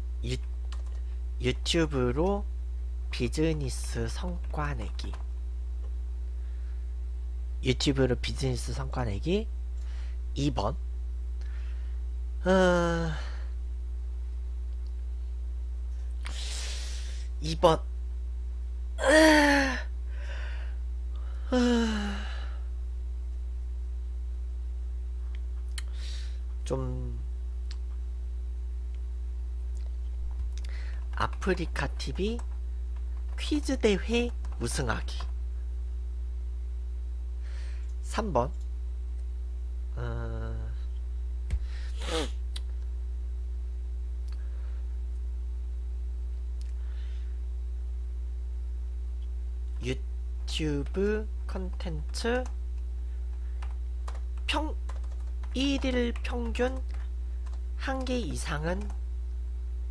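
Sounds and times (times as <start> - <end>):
steady low hum: 0.0 - 59.9
man humming: 19.0 - 20.0, 21.1 - 22.7, 39.9 - 40.9, 41.9 - 42.6
man sighing: 19.0 - 22.7.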